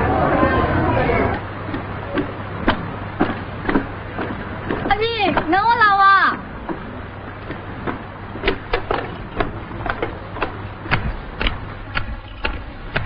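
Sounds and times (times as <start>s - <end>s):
low steady hum: 0.0s - 13.0s
footsteps on wooden planks: 1.7s - 5.6s, 6.6s - 13.0s.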